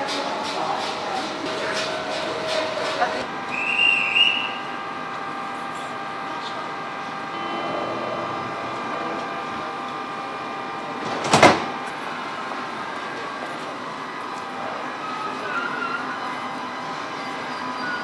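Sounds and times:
train whine: 0.0s - 18.0s
train door clunking shut: 11.0s - 11.8s.

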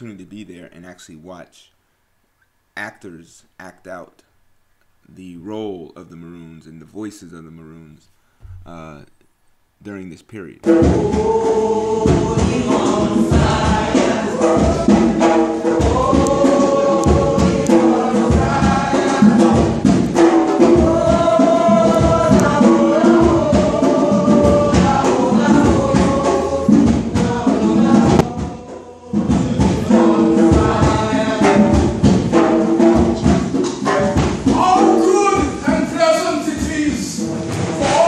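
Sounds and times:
group singing: 10.6s - 38.0s
sharp percussive hits: 10.6s - 38.0s.

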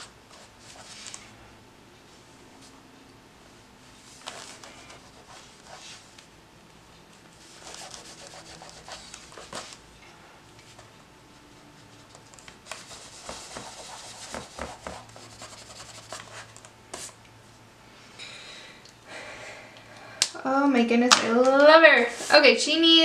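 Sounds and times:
crayon scratching on paper: 7.4s - 9.8s, 12.8s - 17.1s.

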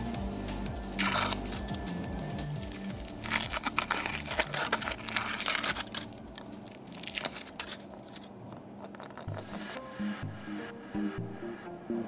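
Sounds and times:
foil wrapper crinkling and tearing: 1.0s - 1.8s, 2.6s - 9.6s.

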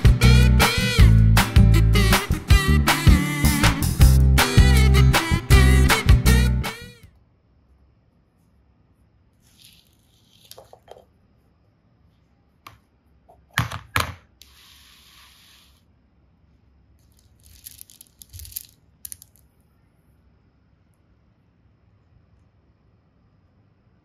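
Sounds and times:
plastic toys rustling: 9.4s - 11.0s, 17.0s - 19.6s
short hiss: 14.4s - 15.8s
pebbles clicking and rattling: 17.0s - 19.6s.

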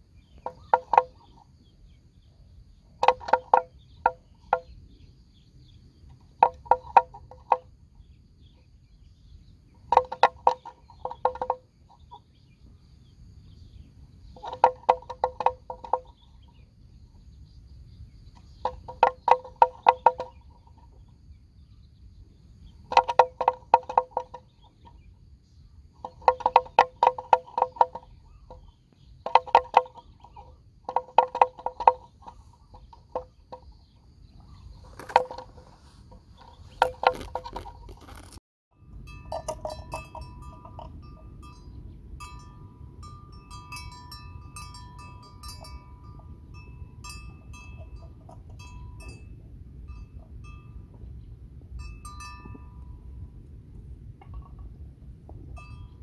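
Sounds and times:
bells tinkling: 38.7s - 51.0s, 51.7s - 53.4s, 55.5s - 56.0s
bells clanking: 38.8s - 51.1s, 51.7s - 53.4s, 55.6s - 56.0s
low rumble: 38.8s - 56.0s.

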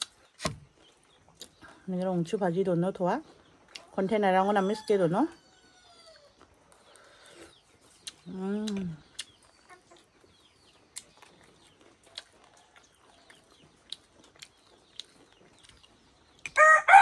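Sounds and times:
small birds chirping: 0.0s - 17.0s
rooster crowing: 16.6s - 17.0s.

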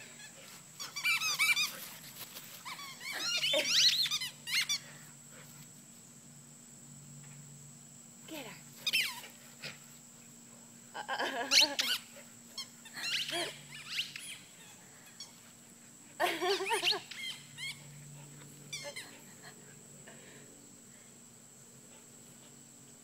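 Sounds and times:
dogs yipping and whining: 0.0s - 2.0s, 2.6s - 4.9s, 11.5s - 15.4s, 16.5s - 19.2s.

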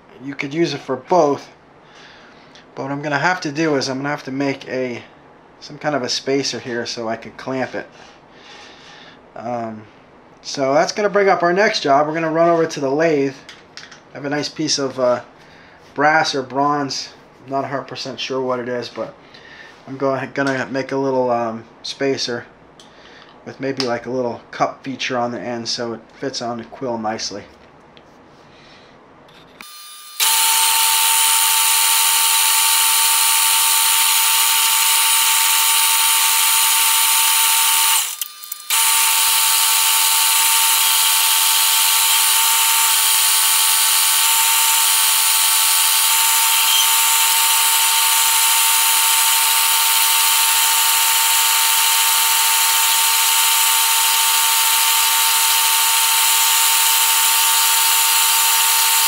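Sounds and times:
metal lathe whining: 29.6s - 59.0s.

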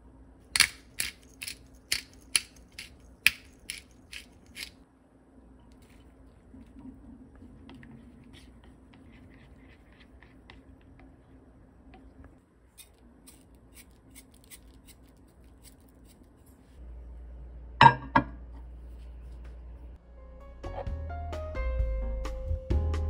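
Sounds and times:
steady low hum: 0.0s - 20.3s
chopsticks stirring egg in glass bowl: 5.7s - 16.4s
glass bowl knocking in microwave: 17.8s - 18.4s.

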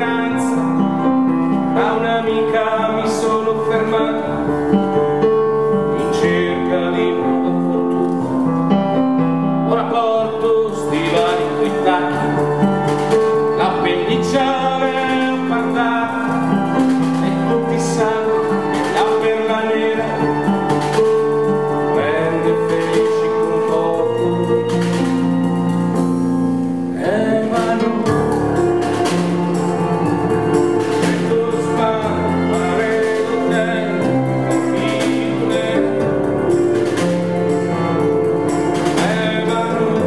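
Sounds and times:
man singing: 0.0s - 8.2s, 9.0s - 25.5s, 26.8s - 40.0s
acoustic guitar: 0.0s - 40.0s
violin sustained notes: 9.6s - 40.0s.

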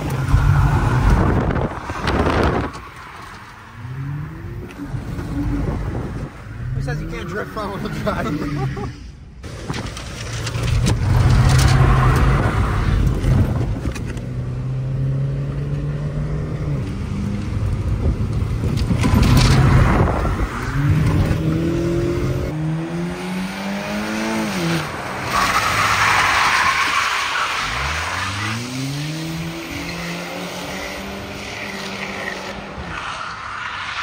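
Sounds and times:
car engine revving: 0.0s - 26.4s.

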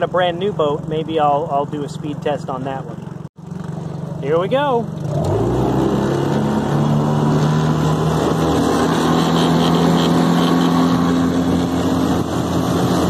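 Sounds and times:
outboard motor at full throttle: 0.0s - 13.0s
water rushing along hull: 3.5s - 13.0s.

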